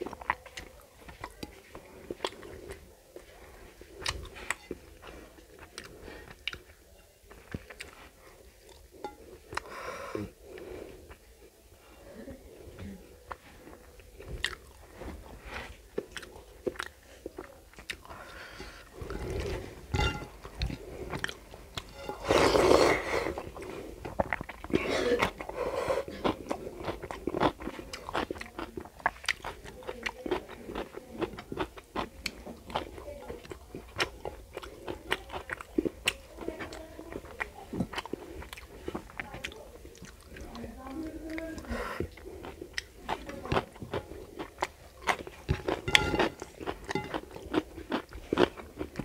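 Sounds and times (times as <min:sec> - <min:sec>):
chewing with wet mouth clicks: 0:00.0 - 0:09.7, 0:13.3 - 0:14.8, 0:15.9 - 0:22.1, 0:23.4 - 0:25.5, 0:26.1 - 0:49.0
fingers mixing rice on plate: 0:15.3 - 0:25.4, 0:41.5 - 0:49.0.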